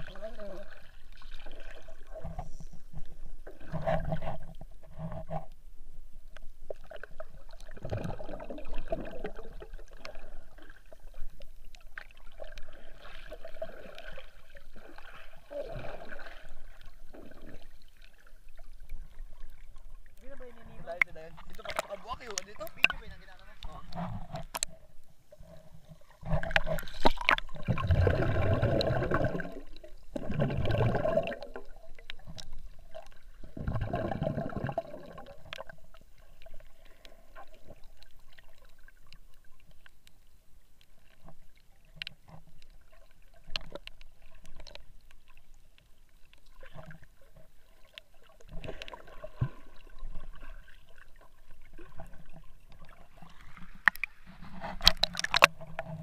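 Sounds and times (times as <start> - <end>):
water surges: 5.7 - 56.0
small clicks underwater: 6.3 - 15.3, 16.2 - 56.0
muffled underwater swishing: 12.3 - 38.3.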